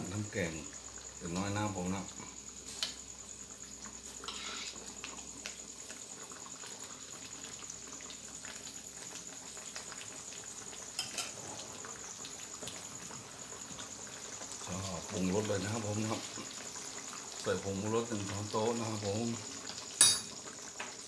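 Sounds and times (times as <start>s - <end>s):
curry bubbling: 0.0s - 21.0s.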